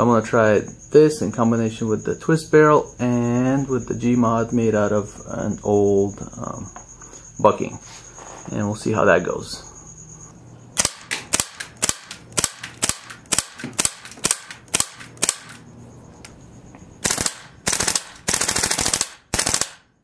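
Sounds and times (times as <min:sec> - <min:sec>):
airsoft rifle shots: 0:10.8 - 0:15.6, 0:17.0 - 0:19.9
rapid full-auto bursts: 0:10.8 - 0:15.6, 0:17.0 - 0:20.0.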